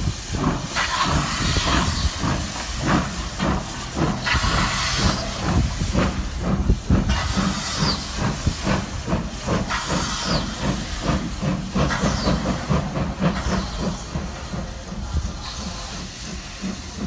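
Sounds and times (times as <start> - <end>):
steam hissing: 0.0 - 17.0
steam locomotive chuffing: 0.0 - 17.0.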